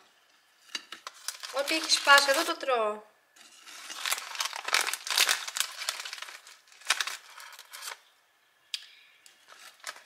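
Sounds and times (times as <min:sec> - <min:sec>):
plastic packaging crinkling: 0:00.8 - 0:02.7, 0:03.4 - 0:08.1, 0:09.4 - 0:10.0
crackers shifting in glass jar: 0:01.1 - 0:02.6, 0:03.5 - 0:08.0.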